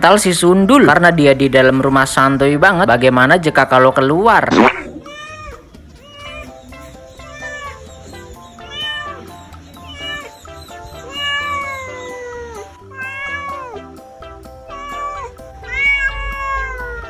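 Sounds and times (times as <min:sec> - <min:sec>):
background music: 0:00.0 - 0:17.0
cat meowing loudly: 0:04.6 - 0:14.0, 0:14.6 - 0:17.0.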